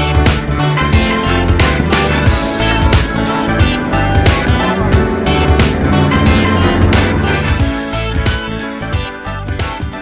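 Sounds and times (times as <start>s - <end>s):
background music with guitar: 0.0s - 10.0s.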